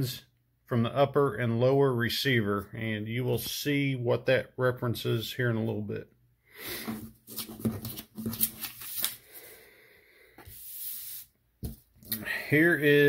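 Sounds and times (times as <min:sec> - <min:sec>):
paper rustling: 0:06.8 - 0:09.5.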